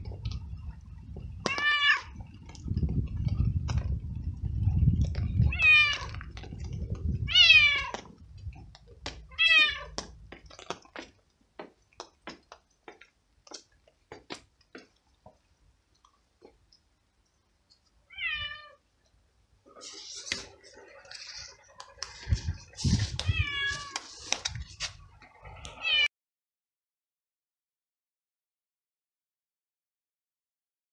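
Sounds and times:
cat meowing loudly: 0:01.4 - 0:02.2, 0:05.4 - 0:06.3, 0:07.2 - 0:08.1, 0:09.3 - 0:10.0, 0:18.1 - 0:18.8, 0:22.9 - 0:24.1, 0:25.4 - 0:26.1.

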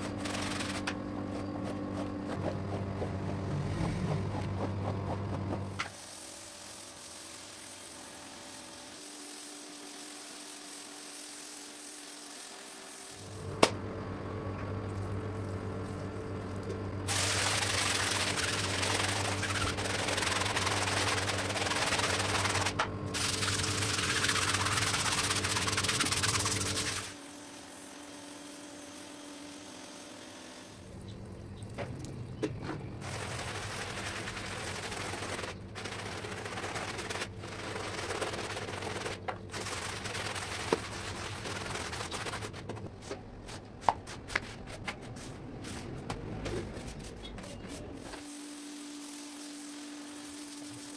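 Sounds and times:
hand brush scrubbing rug: 0:00.0 - 0:13.1, 0:17.1 - 0:27.2, 0:33.0 - 0:50.9
pressure washer motor humming: 0:00.0 - 0:43.9, 0:48.0 - 0:50.9
water jet hissing on rug: 0:05.7 - 0:13.5, 0:17.1 - 0:30.9, 0:33.0 - 0:44.6, 0:48.0 - 0:50.9.

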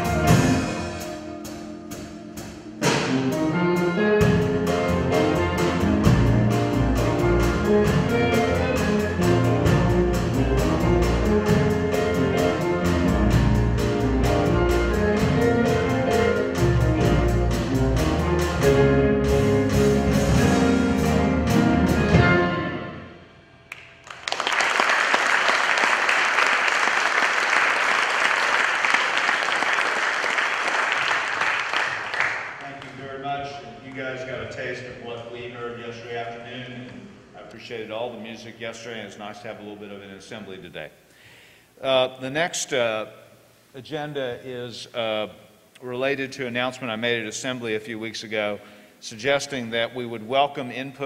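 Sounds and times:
live band playing a song: 0:00.0 - 0:23.2
audience applauding: 0:23.7 - 0:33.1.

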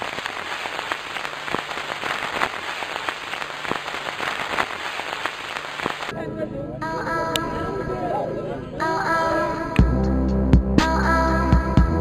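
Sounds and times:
crackling hiss: 0:00.0 - 0:06.2.

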